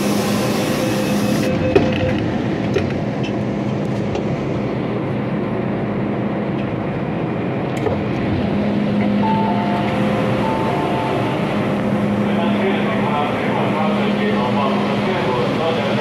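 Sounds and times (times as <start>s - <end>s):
train wheels rumbling on rails: 0.0s - 16.0s
two-note falling tone: 9.2s - 11.7s.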